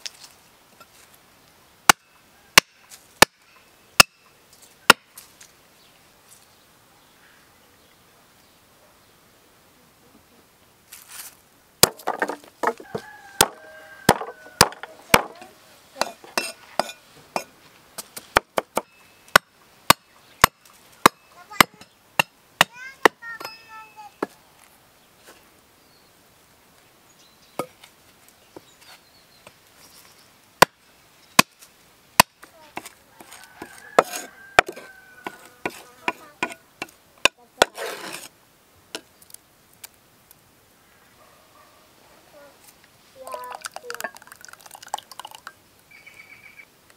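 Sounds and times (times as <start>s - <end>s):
cleaver chopping on wooden stump: 2.6s - 3.4s, 11.8s - 16.9s, 18.2s - 22.7s, 32.2s - 32.9s, 33.6s - 38.1s.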